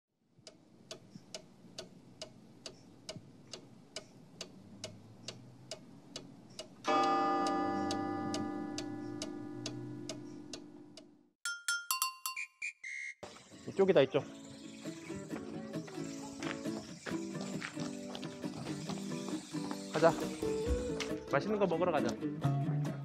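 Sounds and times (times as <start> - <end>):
clock ticking: 0.4 - 11.2
loud ringing chord: 6.9 - 11.0
low hum: 7.6 - 11.3.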